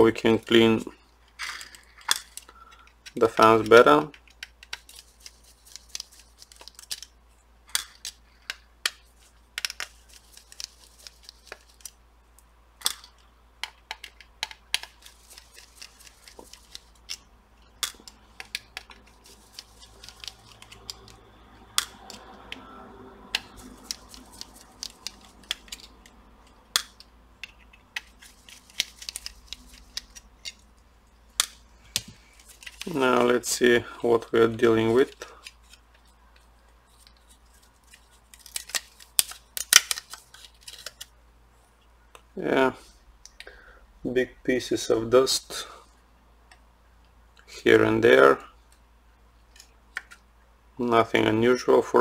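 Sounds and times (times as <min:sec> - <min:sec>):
faint low hum: 0:00.0 - 0:52.0
screws and plastic parts handled: 0:01.3 - 0:07.2, 0:07.8 - 0:12.0, 0:13.6 - 0:21.2, 0:23.4 - 0:26.2, 0:26.8 - 0:30.7, 0:31.4 - 0:33.6.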